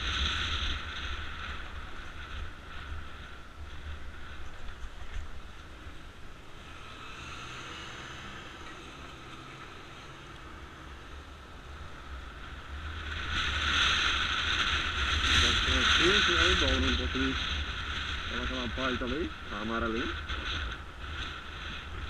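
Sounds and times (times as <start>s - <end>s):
motorcycle engine running: 0.0s - 22.0s
wind on microphone: 11.8s - 22.0s.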